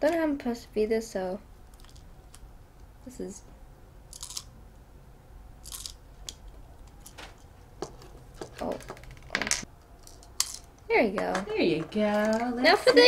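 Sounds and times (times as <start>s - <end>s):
plastic toys clicking and scraping: 1.7s - 2.4s, 4.1s - 4.5s, 5.6s - 13.0s.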